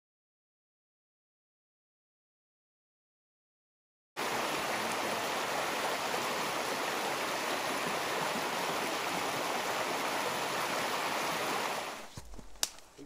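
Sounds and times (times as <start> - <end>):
stream running over rocks: 4.2 - 12.4.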